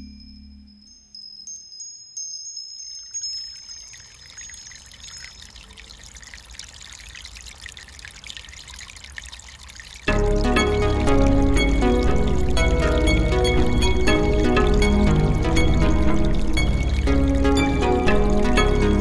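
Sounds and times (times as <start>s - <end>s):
high chime tones: 0.0s - 5.4s
running water rushing: 2.9s - 19.0s.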